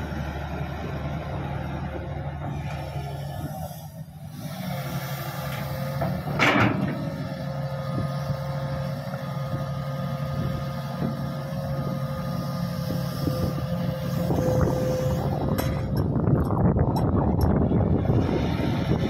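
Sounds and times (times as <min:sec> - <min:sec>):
heavy diesel engines running: 0:00.0 - 0:19.0
hydraulic whine: 0:02.4 - 0:19.0
loud metallic clatter: 0:06.0 - 0:07.1.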